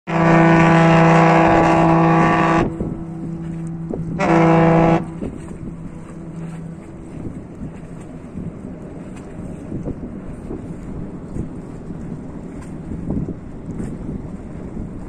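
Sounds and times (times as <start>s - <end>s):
ship's horn blasts: 0.1s - 12.0s
low rumble: 0.1s - 15.0s.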